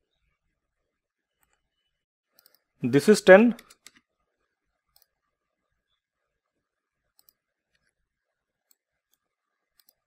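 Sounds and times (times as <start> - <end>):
faint computer mouse clicks: 2.4 - 2.7, 7.1 - 7.9, 8.6 - 10.0.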